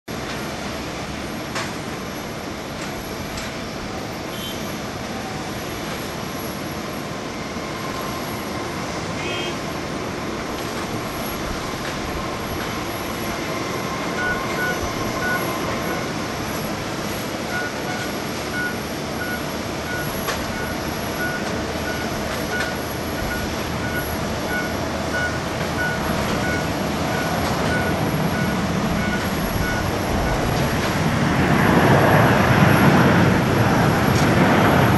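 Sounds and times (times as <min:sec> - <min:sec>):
jet engine rushing: 0:00.2 - 0:34.9
short electronic beeps: 0:14.1 - 0:16.1, 0:17.5 - 0:30.5.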